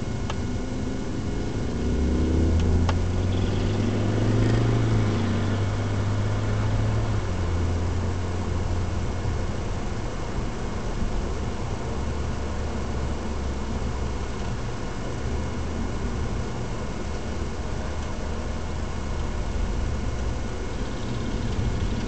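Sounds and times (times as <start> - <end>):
car engine running: 0.0 - 22.0
road and tyre noise: 0.0 - 22.0.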